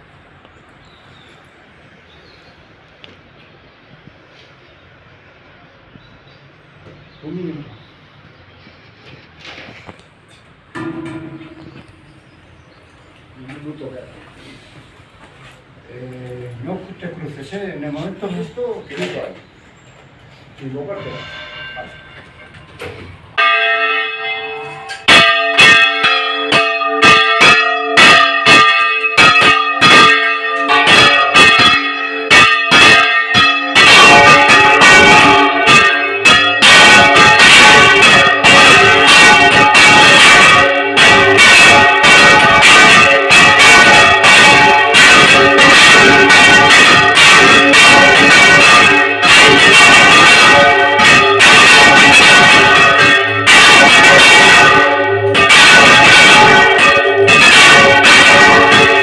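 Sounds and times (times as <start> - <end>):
church bells pealing: 10.7 - 12.4, 20.6 - 59.0.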